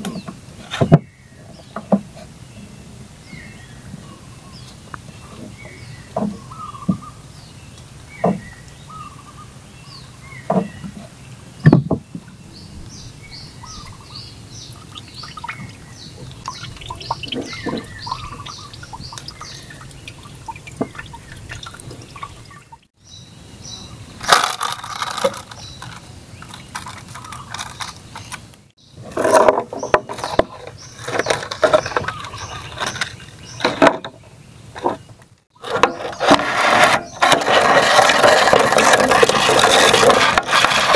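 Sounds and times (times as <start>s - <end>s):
small birds chirping: 0.0s - 24.2s, 25.2s - 40.1s
plastic bag crinkling: 24.2s - 28.1s.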